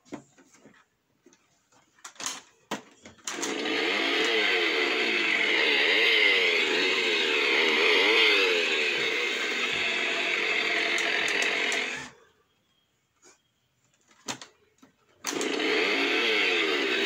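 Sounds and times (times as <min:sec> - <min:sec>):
chainsaw revving: 0:03.3 - 0:12.2, 0:15.3 - 0:17.0.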